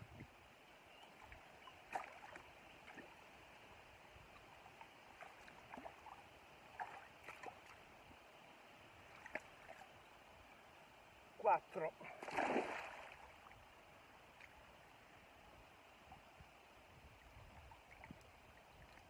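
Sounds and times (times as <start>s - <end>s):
river water flowing: 0.4s - 19.0s
small splashes and drips: 1.2s - 3.2s, 4.3s - 7.9s, 9.0s - 10.0s, 12.0s - 13.6s, 17.5s - 19.0s.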